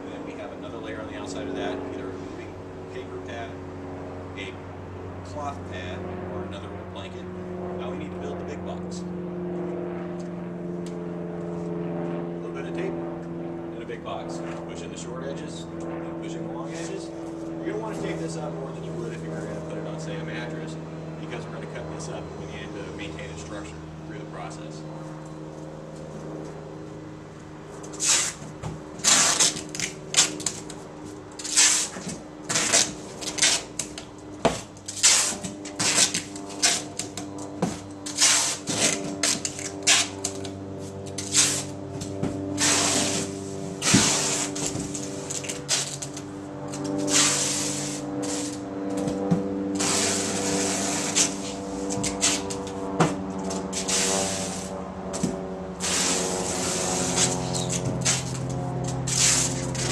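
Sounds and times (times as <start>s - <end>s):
packing tape screeching off roll: 27.9s - 28.4s, 29.0s - 30.6s, 31.4s - 33.6s, 34.9s - 37.0s, 38.0s - 40.2s, 41.2s - 41.7s, 42.6s - 44.7s, 47.1s - 48.6s, 49.8s - 51.4s, 52.1s - 52.5s, 57.1s - 58.4s.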